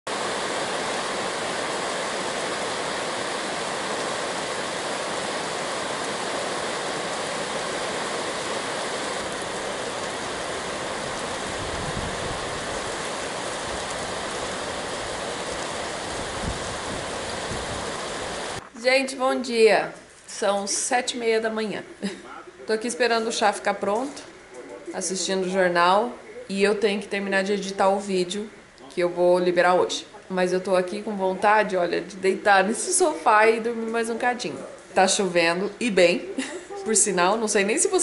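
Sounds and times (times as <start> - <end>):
heavy rain: 0.1 - 18.7.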